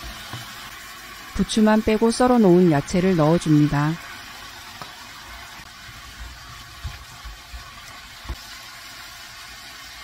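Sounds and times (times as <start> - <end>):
food sizzling in oil: 0.0 - 10.0.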